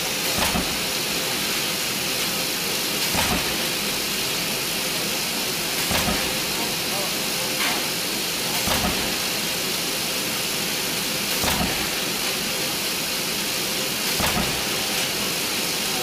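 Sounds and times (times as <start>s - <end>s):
machine hissing: 0.0s - 16.0s.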